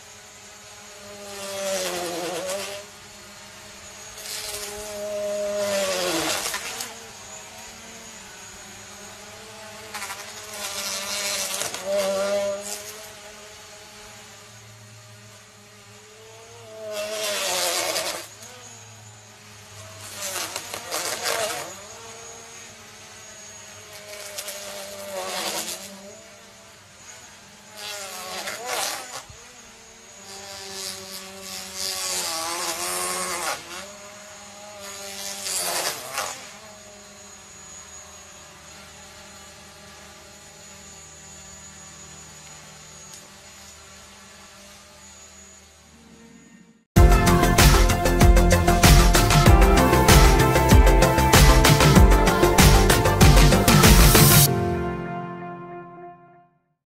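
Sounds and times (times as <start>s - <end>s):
drone propellers whining: 44.9s - 55.2s
loud rushing surges: 47.0s - 55.3s.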